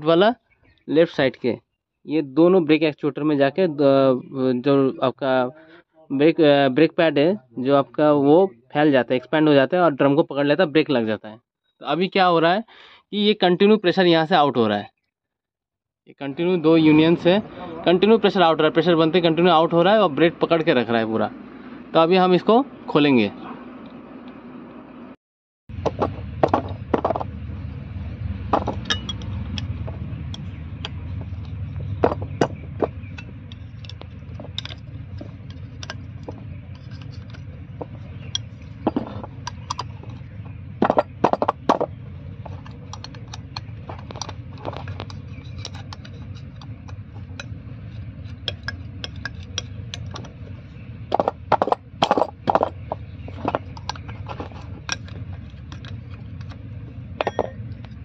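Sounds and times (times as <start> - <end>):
low steady rumble: 16.4 - 58.0
metal clinks and scrapes: 28.6 - 58.0.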